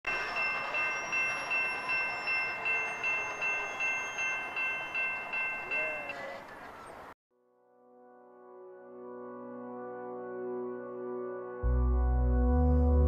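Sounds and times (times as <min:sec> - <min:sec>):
bell-like chime pulsing: 0:00.1 - 0:06.3.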